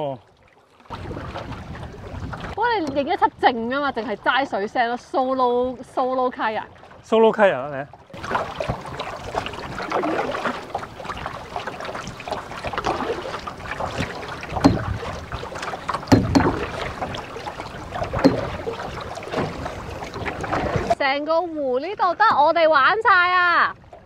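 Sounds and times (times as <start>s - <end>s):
paddle strokes through water: 0.0s - 24.0s
sharp knocks on canoe: 8.2s - 21.0s.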